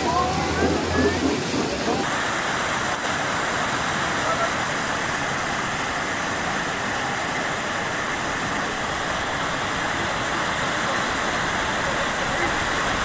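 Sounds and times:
floodwater rushing down a street: 0.0 - 13.0.

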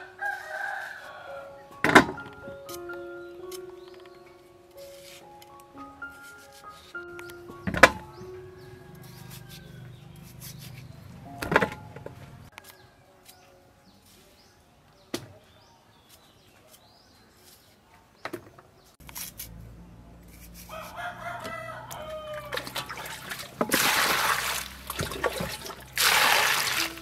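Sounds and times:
rooster crowing: 0.0 - 1.6, 8.6 - 10.2, 20.7 - 23.0
cleaver cutting cucumber: 9.0 - 11.2, 19.0 - 21.6
water poured into metal basin: 22.5 - 27.0.

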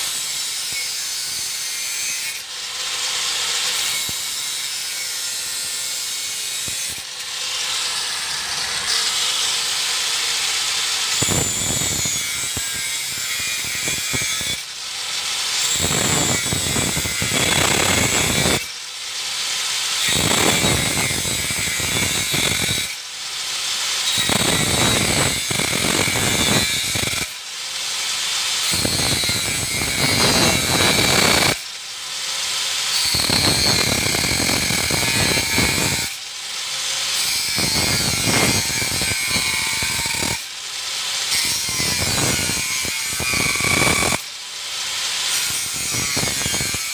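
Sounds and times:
grinder motor whining freely: 0.0 - 31.6, 32.2 - 46.9
angle grinder cutting metal: 0.0 - 46.9.

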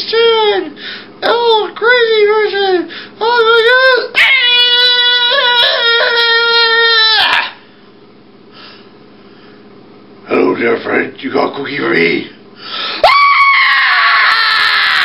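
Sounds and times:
puppet voice wailing and crying: 1.4 - 7.6.

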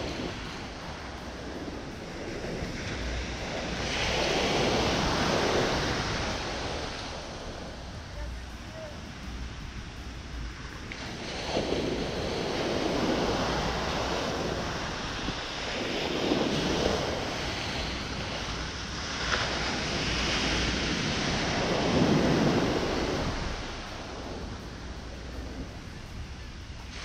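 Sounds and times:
surf breaking on beach: 10.8 - 27.0.

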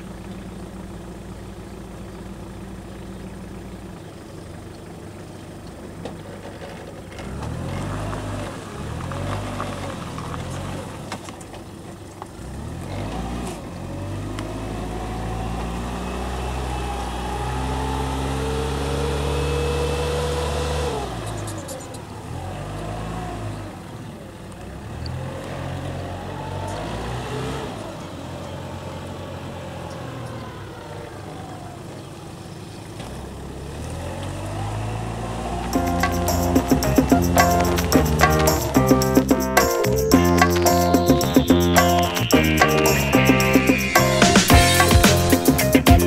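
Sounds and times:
forklift diesel engine running: 34.4 - 46.0.

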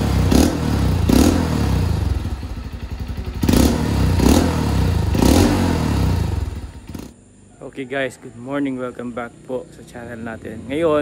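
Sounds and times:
motorcycle engine revving: 0.0 - 7.2.

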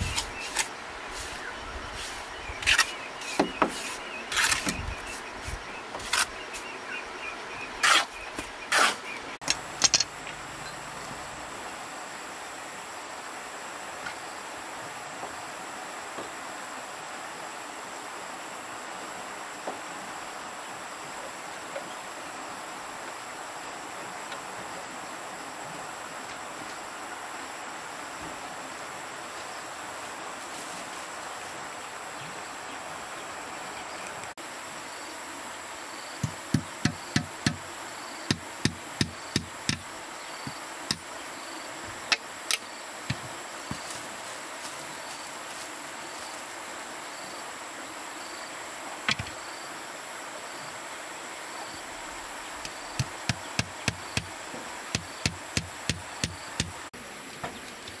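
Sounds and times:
steady hiss: 0.0 - 58.0
tool knocking on wood: 3.4 - 3.8, 36.2 - 37.6, 38.3 - 39.8, 53.0 - 54.3, 54.9 - 56.8.

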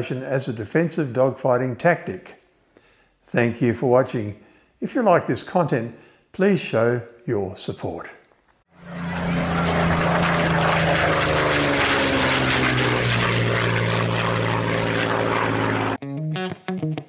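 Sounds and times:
propeller aircraft engine: 8.7 - 16.0
plucked-string music: 16.0 - 17.0.

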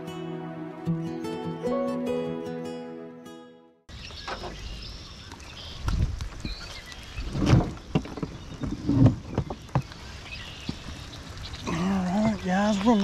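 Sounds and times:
bucket handling thumps and rustling: 7.3 - 9.9.

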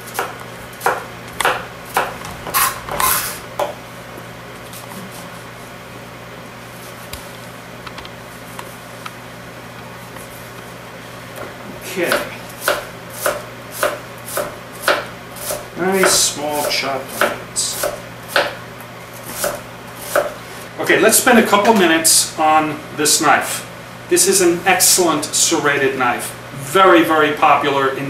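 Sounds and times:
knife chopping onion on board: 0.0 - 3.8, 12.1 - 18.6, 19.2 - 20.4.

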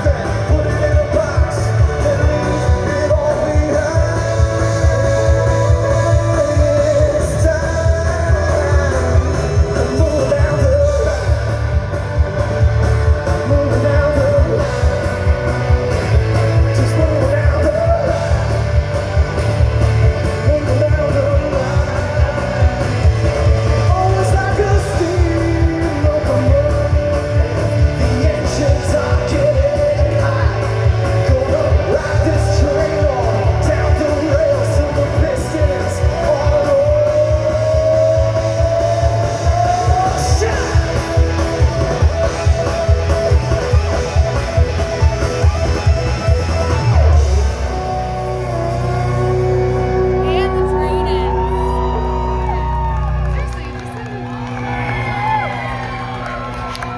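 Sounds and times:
person singing lead vocals: 0.0 - 11.8, 13.2 - 15.4, 16.2 - 18.9, 20.1 - 42.7
live rock band playing: 0.0 - 56.9.

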